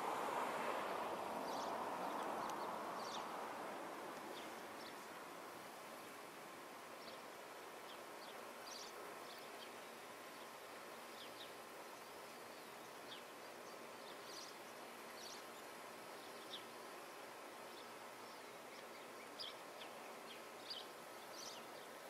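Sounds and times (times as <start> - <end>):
faint outdoor hiss: 0.0 - 22.0.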